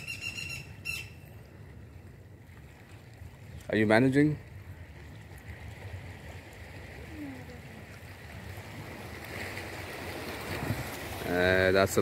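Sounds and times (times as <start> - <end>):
small waves washing against rocks: 2.6 - 12.0.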